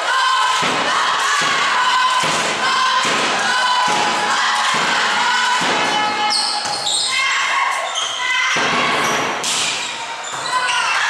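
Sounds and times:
crowd chanting: 0.0s - 11.0s
steady thuds: 0.6s - 6.0s.

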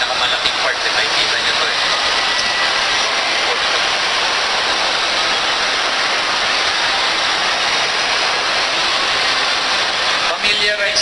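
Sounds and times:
busy shopping mall din: 0.0s - 11.0s.

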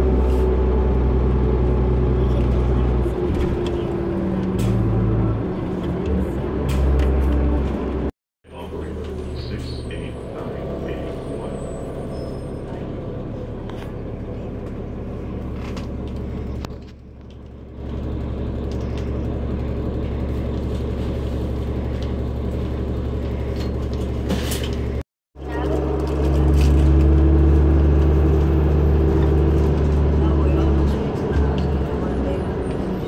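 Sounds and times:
bus engine droning: 0.0s - 33.0s.

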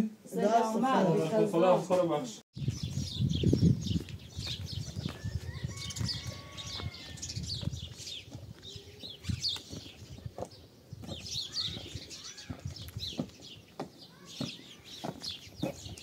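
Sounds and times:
small birds chirping: 2.6s - 16.0s
footsteps on gravel: 3.9s - 16.0s.

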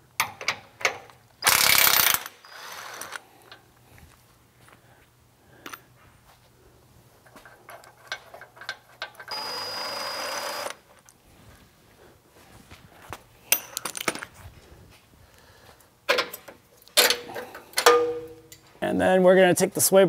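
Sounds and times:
power tool running: 1.4s - 3.2s, 9.3s - 10.8s
metal tools clanking: 7.2s - 9.4s, 13.5s - 14.3s, 16.1s - 18.7s.

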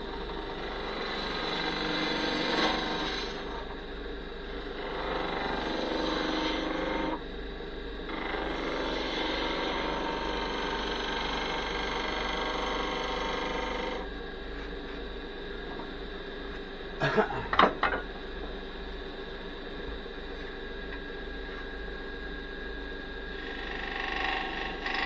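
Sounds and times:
wood lathe running: 0.0s - 3.7s, 4.6s - 7.2s, 8.1s - 14.0s, 23.3s - 25.0s.

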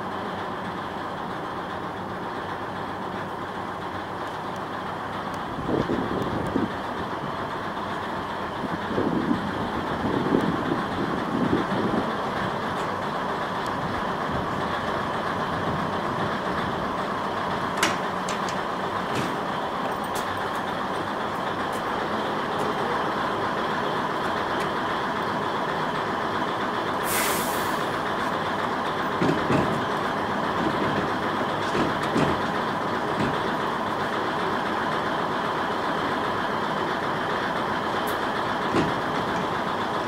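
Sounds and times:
diesel engine idling: 0.0s - 40.0s
sharp clicks and knocks: 17.7s - 21.1s, 29.1s - 33.6s, 38.1s - 39.5s
compressed air hiss: 27.0s - 27.9s.

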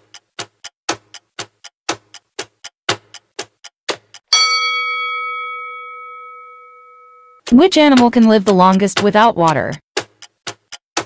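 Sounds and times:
clock ticking: 0.0s - 6.0s, 7.4s - 11.0s
bright bell chime: 4.3s - 7.4s.

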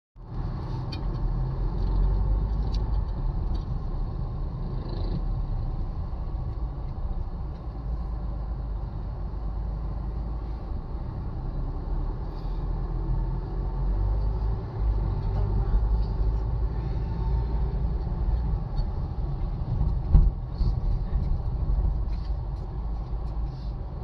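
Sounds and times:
heavy road traffic rumble: 0.2s - 24.0s.

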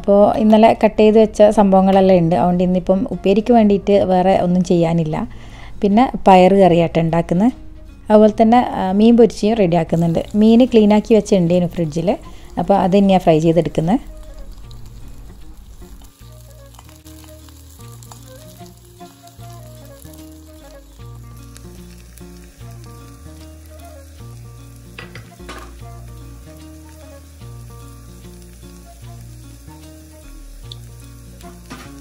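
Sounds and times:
vegetables sizzling in hot oil: 9.8s - 32.0s.

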